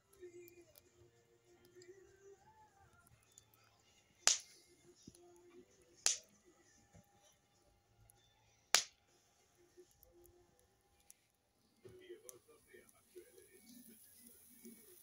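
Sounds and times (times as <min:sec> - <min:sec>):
wood fire popping: 0:00.0 - 0:06.4, 0:08.1 - 0:09.1.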